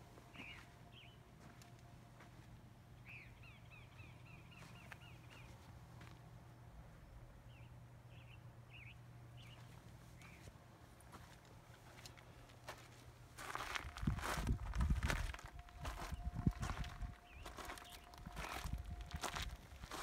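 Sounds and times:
low steady hum: 0.0s - 20.0s
bird chirps: 3.0s - 5.5s.

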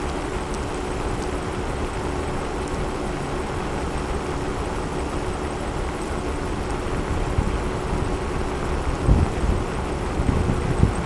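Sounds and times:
scooter tyre rumbling on asphalt: 9.0s - 11.0s.

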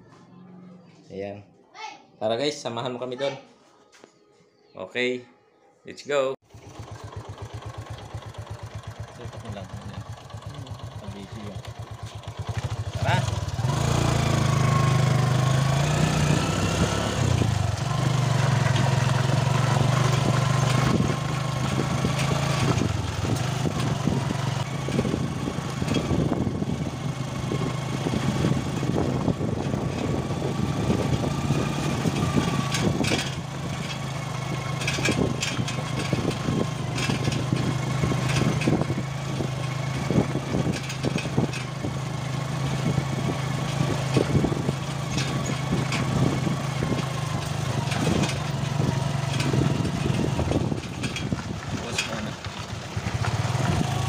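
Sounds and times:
small vehicle engine running: 6.4s - 54.0s
body rattles and knocks: 27.4s - 54.0s.

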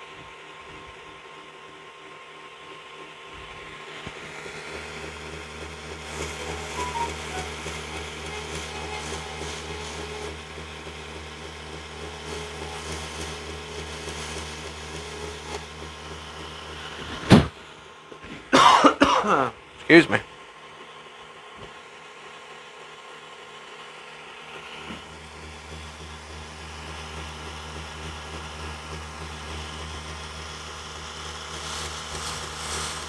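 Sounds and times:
power tool motor humming: 6.0s - 16.1s
person coughing: 18.6s - 19.5s.

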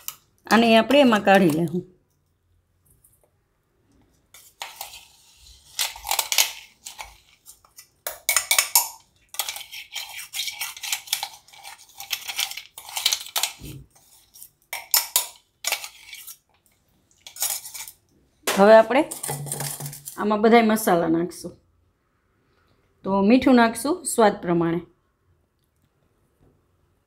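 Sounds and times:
metal utensils clinking and scraping: 0.0s - 0.2s, 4.3s - 20.2s.

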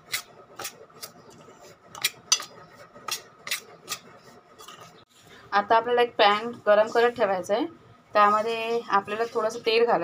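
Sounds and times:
metal spoon scraping steel plate: 1.3s - 4.0s.

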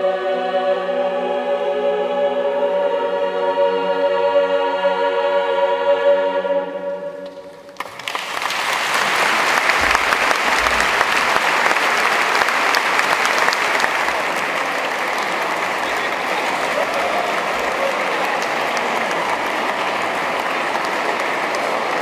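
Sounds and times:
choir holding chord: 0.0s - 7.8s, 9.1s - 22.0s
audience applause: 7.7s - 22.0s.

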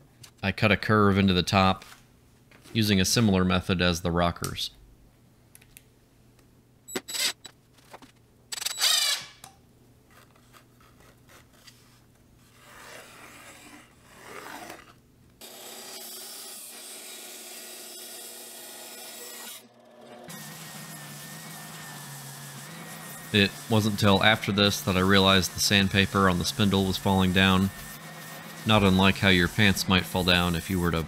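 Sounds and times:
bandsaw cutting wood: 12.8s - 31.0s
pencil rubbing on wood: 20.3s - 31.0s.

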